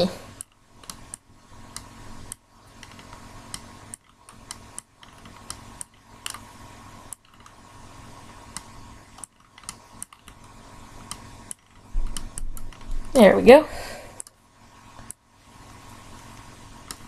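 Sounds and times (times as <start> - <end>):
computer fan hum: 0.0 - 17.0
computer mouse clicks: 0.3 - 7.6, 8.5 - 13.1, 15.0 - 17.0.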